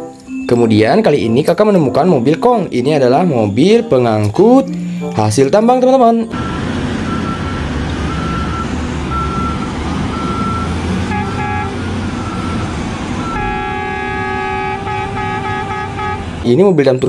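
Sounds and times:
reversing alarm beeping: 6.3 - 16.2
horn toots and blast: 6.3 - 16.5
diesel engines running: 6.3 - 17.0.

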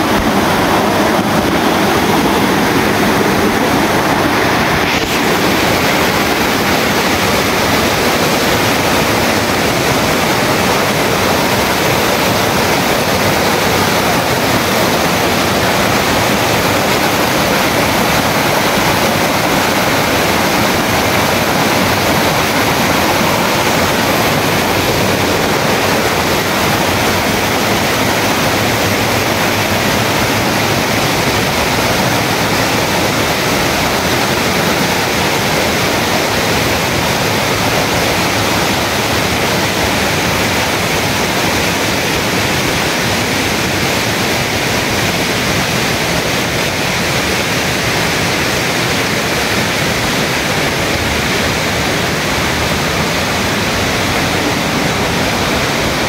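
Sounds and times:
creek rushing over boulders: 0.0 - 56.0.

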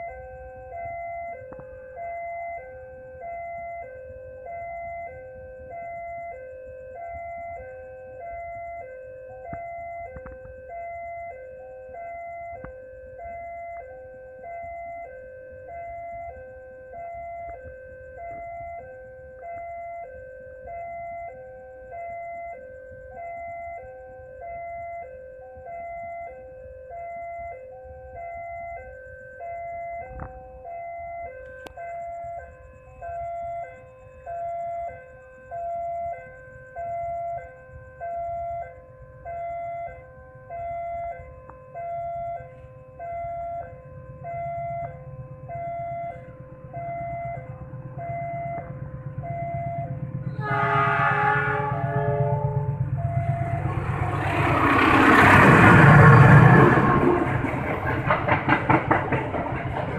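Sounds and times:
low rumble: 43.9 - 59.9.

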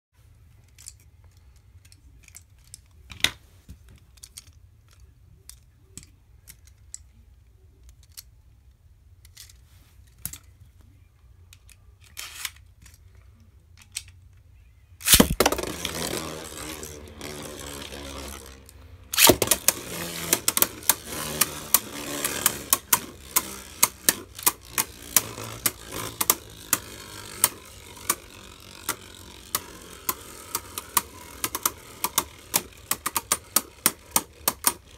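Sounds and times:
spinning tops clacking together: 15.0 - 34.9
spinning tops rushing and scraping: 15.0 - 34.9.

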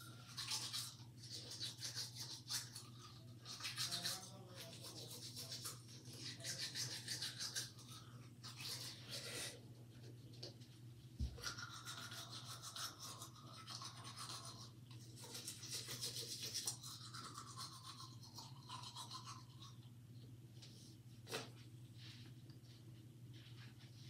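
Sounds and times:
toothbrush scrubbing teeth: 0.0 - 10.6, 11.2 - 19.9.

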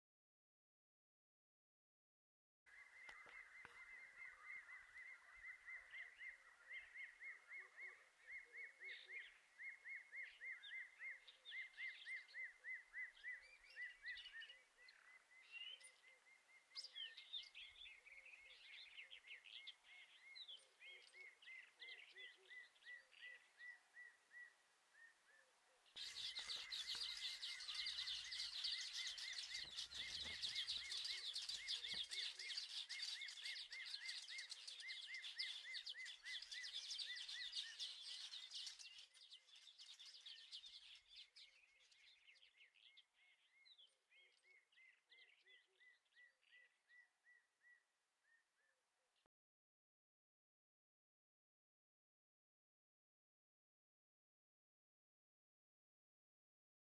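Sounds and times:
birds chirping: 2.7 - 47.1.

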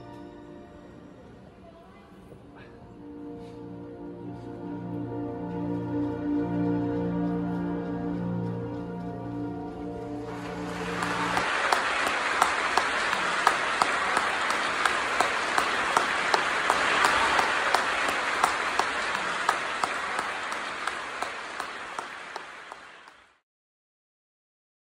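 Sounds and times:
audience applauding: 10.2 - 23.4.

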